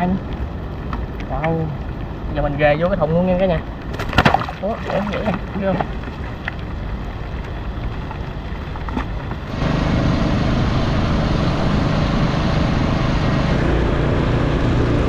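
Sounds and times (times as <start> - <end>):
small boat engine running: 9.4 - 15.0.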